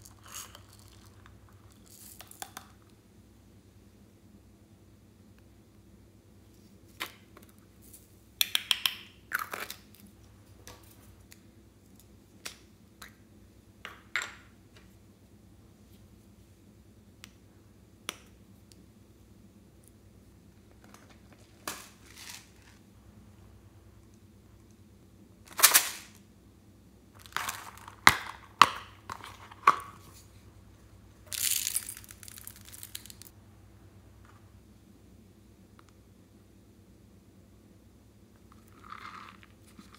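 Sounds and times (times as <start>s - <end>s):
foam beads rattling into glass dish: 31.3s - 33.3s.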